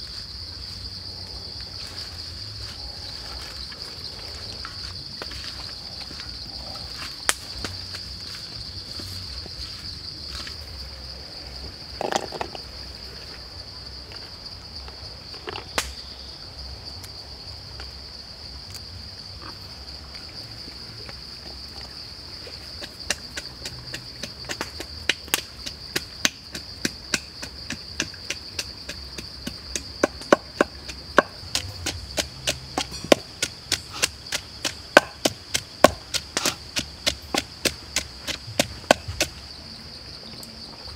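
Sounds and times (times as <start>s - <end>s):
insects droning: 0.0s - 40.9s
pestle pounding in wooden mortar: 22.8s - 39.4s.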